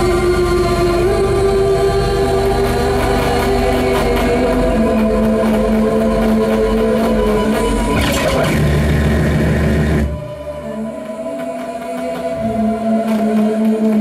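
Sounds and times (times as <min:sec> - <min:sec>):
electronic synthesizer drone: 0:00.0 - 0:14.0.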